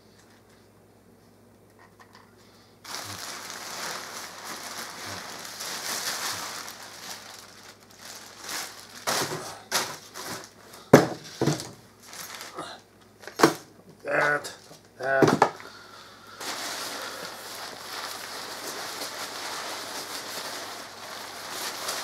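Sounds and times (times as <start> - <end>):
plastic bag crinkling: 2.8 - 12.7, 16.2 - 22.0
fabric rustling: 2.9 - 10.6, 16.4 - 22.0.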